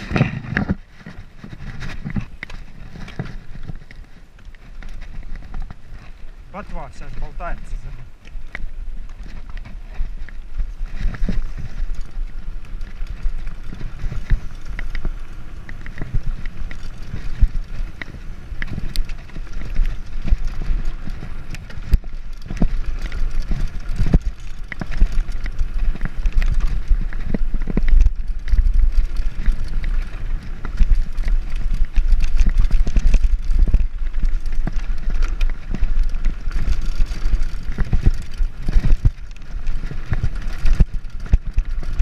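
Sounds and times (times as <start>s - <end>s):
tyres rolling over dirt: 0.0s - 42.0s
bike knocks and rattles: 7.9s - 42.0s.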